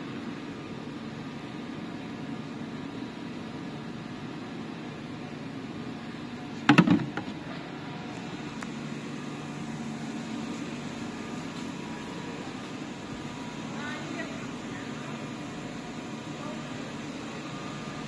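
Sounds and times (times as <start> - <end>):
machinery humming: 0.0 - 18.0
loud clatter of knocks: 6.7 - 7.3.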